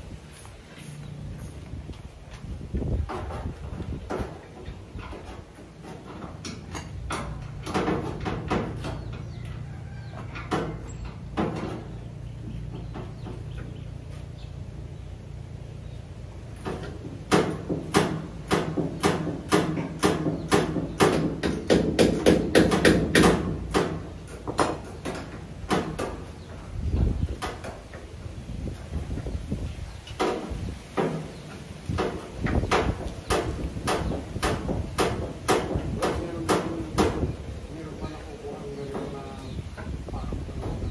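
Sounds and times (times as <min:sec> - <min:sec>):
steady low hum: 0:00.0 - 0:40.9
sharp knocks: 0:03.0 - 0:09.1, 0:16.6 - 0:26.3, 0:30.1 - 0:37.4.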